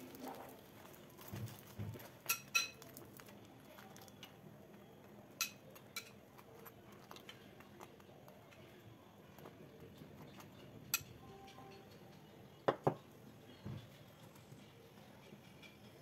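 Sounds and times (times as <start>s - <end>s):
metal spoon clinking on cookware: 2.2s - 2.9s, 5.4s - 6.6s, 10.2s - 14.0s.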